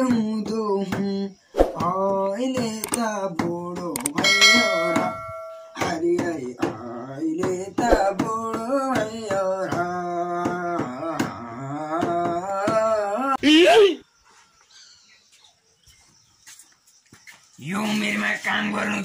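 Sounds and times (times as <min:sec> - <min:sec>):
person singing: 0:00.0 - 0:13.5
bright bell chime: 0:04.2 - 0:05.8.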